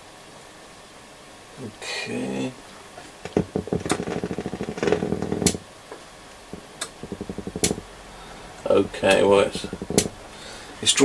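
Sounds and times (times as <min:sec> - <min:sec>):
sharp clicks: 0:06.8 - 0:07.9.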